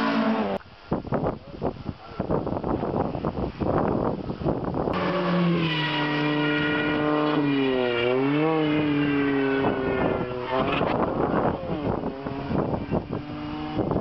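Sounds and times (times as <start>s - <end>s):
rally car engine revving: 4.9s - 14.0s.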